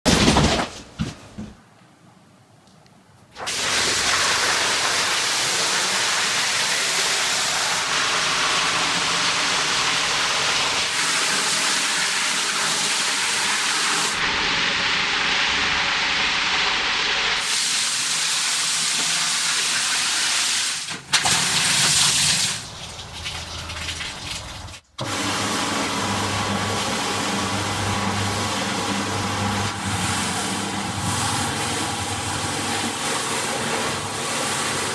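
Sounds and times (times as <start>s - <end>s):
water rushing through rug: 3.4s - 15.4s, 16.0s - 34.9s
rug scrubbing machine humming: 22.6s - 34.9s.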